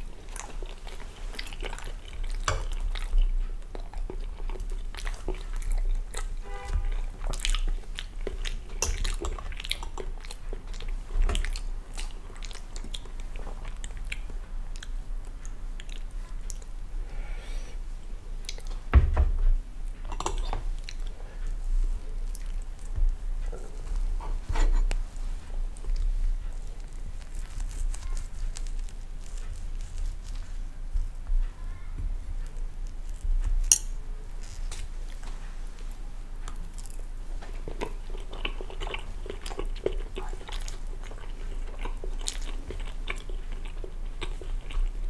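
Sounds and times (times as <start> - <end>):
chewing and swallowing: 0.0 - 16.8, 35.8 - 45.0.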